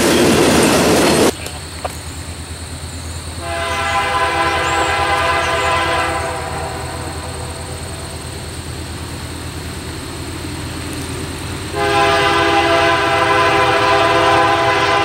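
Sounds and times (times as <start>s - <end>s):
locomotive horn blast: 3.4s - 8.1s, 11.7s - 15.0s
steady low rumble: 6.1s - 12.5s.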